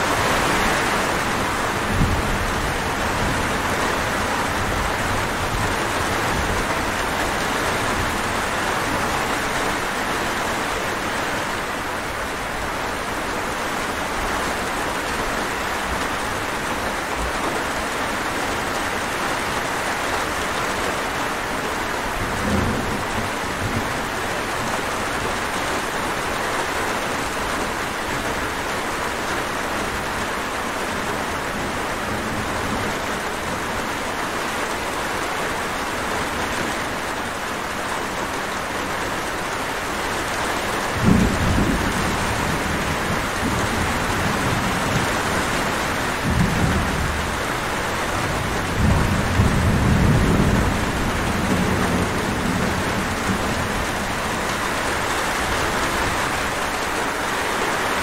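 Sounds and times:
steady rain falling: 0.0s - 58.0s
thunder rumbling: 40.9s - 56.7s.

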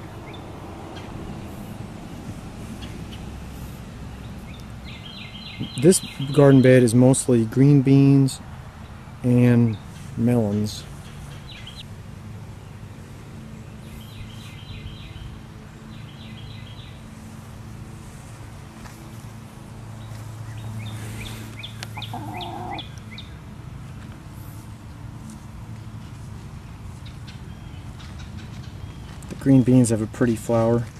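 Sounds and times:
hen chirping: 21.6s - 22.9s
lower hen call: 22.0s - 22.9s.

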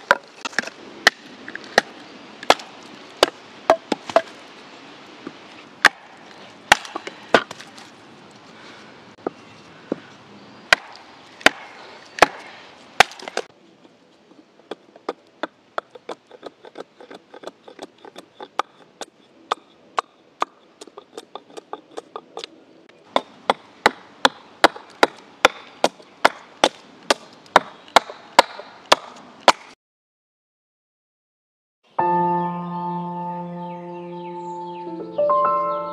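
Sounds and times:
hatchet chopping wood: 0.0s - 4.3s, 5.8s - 6.1s, 6.7s - 7.6s, 10.7s - 13.5s, 14.7s - 22.5s, 23.1s - 29.8s.

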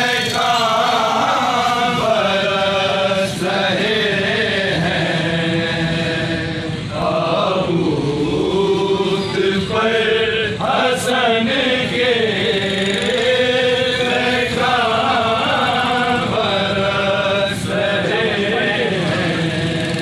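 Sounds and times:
man chanting a lament: 7.7s - 20.0s.

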